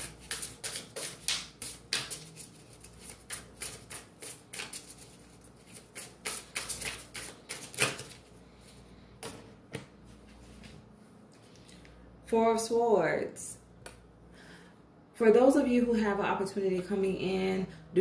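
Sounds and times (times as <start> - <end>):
cards being shuffled: 0.0 - 9.9.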